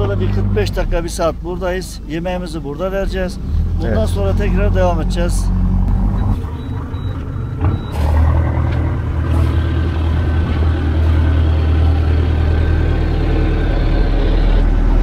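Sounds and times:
boat engine humming: 0.0s - 15.0s.

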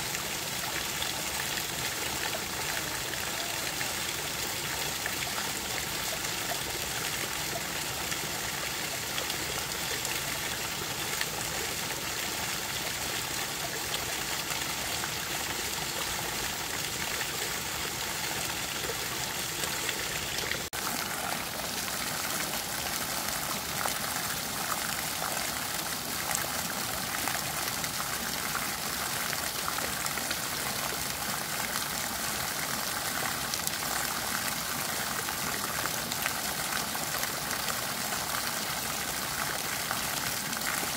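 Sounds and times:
stream water trickling: 0.0s - 40.9s.

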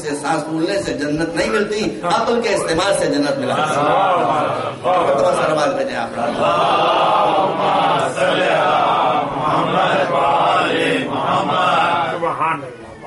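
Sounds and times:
congregation chanting in unison: 3.4s - 12.7s.

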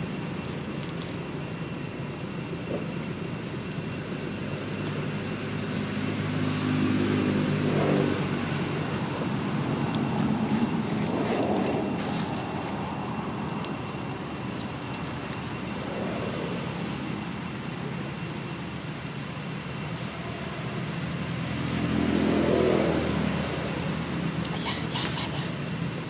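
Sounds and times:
road traffic hum: 0.0s - 26.0s
vehicle passing: 5.9s - 13.4s, 15.4s - 18.1s, 20.0s - 24.4s.

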